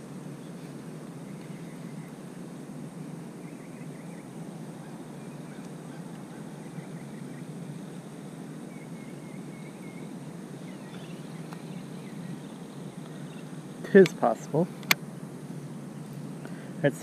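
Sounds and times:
faint high bird chirps: 0:00.3 - 0:02.3, 0:03.3 - 0:08.0, 0:08.6 - 0:14.0.

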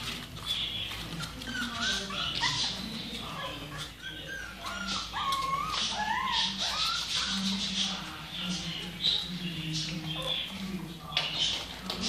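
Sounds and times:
puppies whimpering and squeaking: 0:00.0 - 0:12.0.

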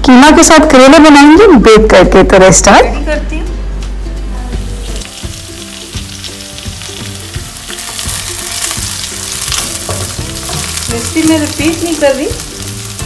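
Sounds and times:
onions sizzling in oil: 0:04.6 - 0:13.0.

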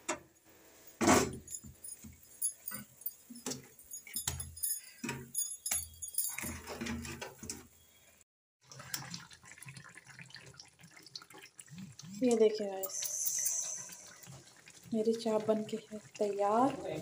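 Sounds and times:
metallic clinks and knocks: 0:01.2 - 0:07.6.

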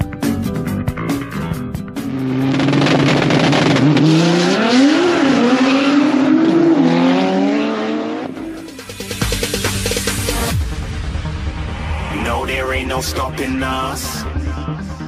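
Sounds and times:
background music: 0:00.0 - 0:03.4, 0:07.8 - 0:15.0
drag racing cars accelerating: 0:02.0 - 0:08.8.

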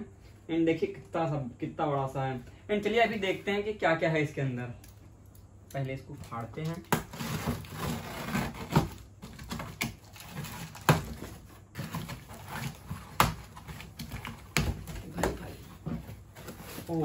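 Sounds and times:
packing tape cut and torn: 0:06.2 - 0:17.0
cardboard flaps scraping: 0:06.3 - 0:17.0
cardboard and scissors knocking: 0:06.6 - 0:16.9.

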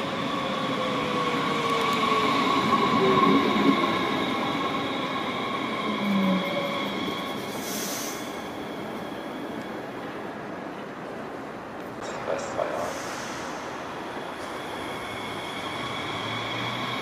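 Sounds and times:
short hiss: 0:12.8 - 0:13.7.

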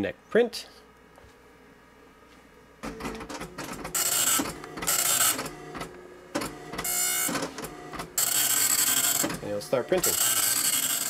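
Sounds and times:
dot matrix printer printing: 0:02.8 - 0:11.0.

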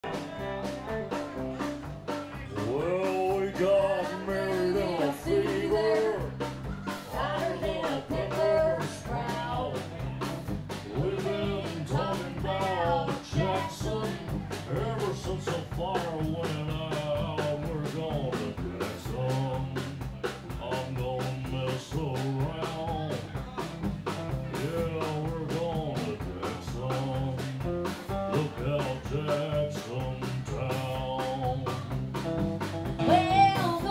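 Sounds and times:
bending lead guitar line: 0:00.0 - 0:17.7, 0:30.6 - 0:33.9
live country band playing: 0:00.0 - 0:33.9
steady drum beat: 0:00.0 - 0:33.9.

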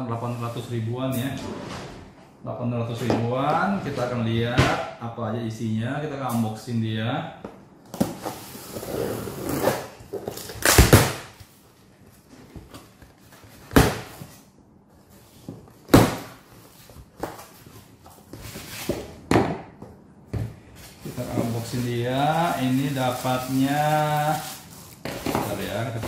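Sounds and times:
cardboard rustling: 0:20.8 - 0:26.0.

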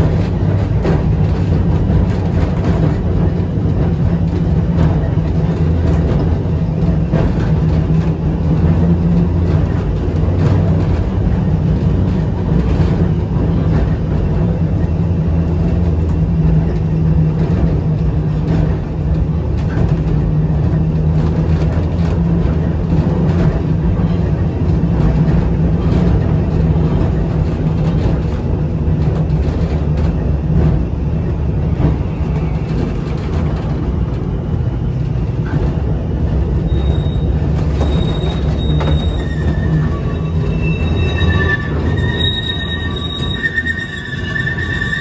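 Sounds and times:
tram motors and wheels rumbling: 0:00.0 - 0:45.0
high-pitched wheel squeals: 0:36.6 - 0:45.0.

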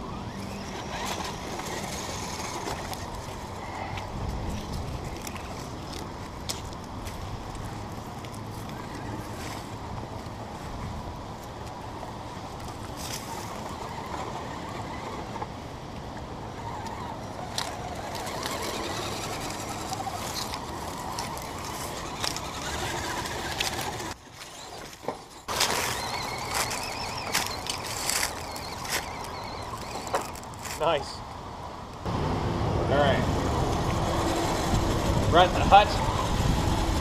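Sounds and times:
rustling: 0:17.6 - 0:30.9.

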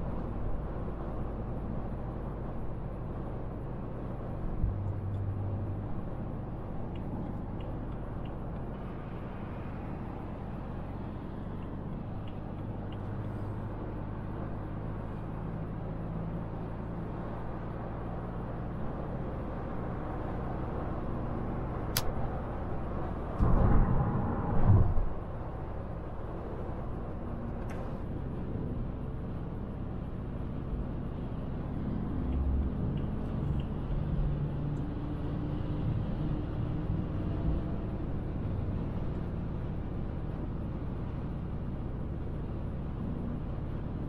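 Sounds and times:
car engine hum: 0:00.0 - 0:44.0
tyre and road noise: 0:00.0 - 0:44.0
brief low thump: 0:23.4 - 0:25.1.

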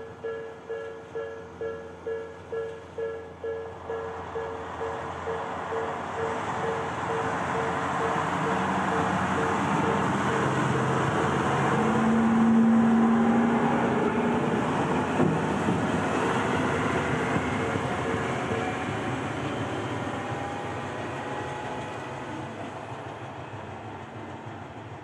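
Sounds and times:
level crossing alarm ringing: 0:00.0 - 0:12.2, 0:16.2 - 0:19.2
diesel rail car passing: 0:00.0 - 0:25.0.

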